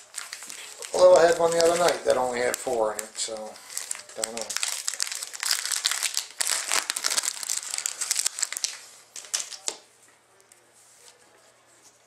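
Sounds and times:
wrapper tearing and crinkling: 0.0 - 9.7
cards rustling: 0.0 - 9.8.

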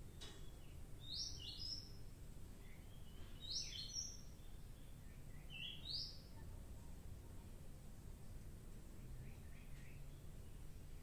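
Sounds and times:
small bird chirping: 0.1 - 2.0, 2.6 - 6.3.

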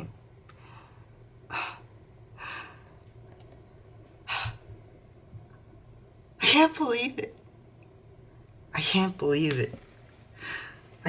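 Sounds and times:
faint low hum: 0.0 - 11.0
man breathing heavily: 0.6 - 3.0.

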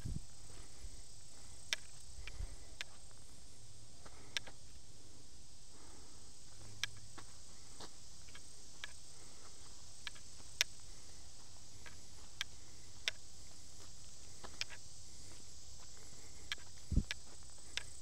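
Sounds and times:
insects droning: 0.0 - 18.0
sharp clicks and ticks: 1.6 - 3.0, 8.2 - 9.0, 10.0 - 10.8, 11.8 - 13.2, 14.4 - 14.8, 16.4 - 18.0.

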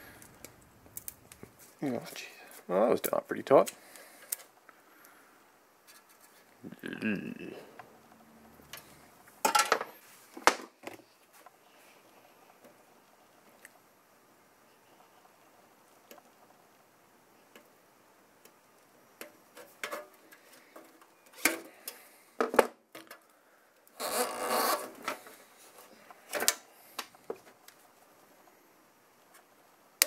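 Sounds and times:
insulation rustling scrape: 5.8 - 6.6.

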